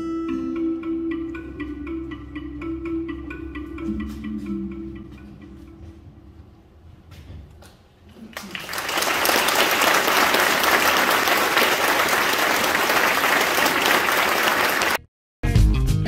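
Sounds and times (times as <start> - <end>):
audience applauding: 8.3 - 15.1.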